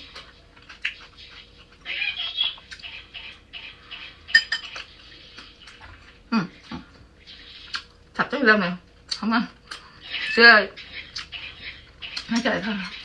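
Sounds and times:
chewing and mouth sounds: 0:00.0 - 0:01.8, 0:07.6 - 0:08.0, 0:11.0 - 0:11.4.

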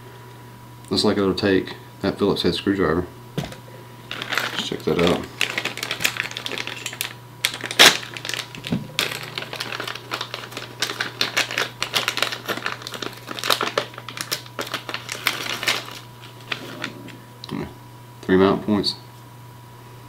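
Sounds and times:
plastic packaging crinkling: 0:03.4 - 0:17.1.

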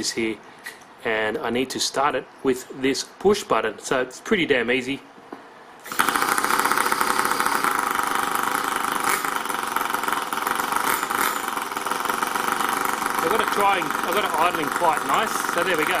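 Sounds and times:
model engine idling: 0:05.9 - 0:16.0.

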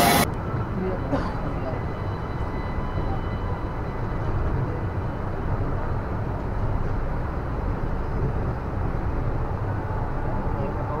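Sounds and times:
train running rumble: 0:00.0 - 0:11.0.

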